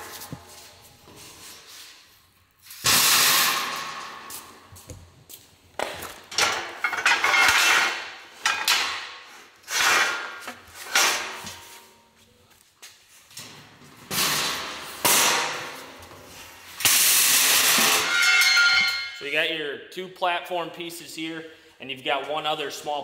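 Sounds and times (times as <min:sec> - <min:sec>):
metal parts clanking: 0:06.3 - 0:09.1.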